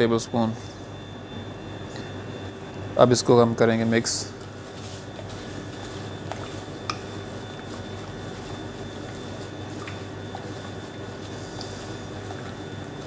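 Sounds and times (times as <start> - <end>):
steady background hum: 0.0 - 13.0
chicken squishing in wet marinade: 4.4 - 13.0.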